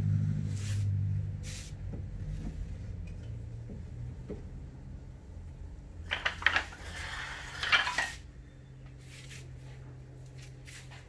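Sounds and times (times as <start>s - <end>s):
wooden offcuts clattering: 6.1s - 8.2s.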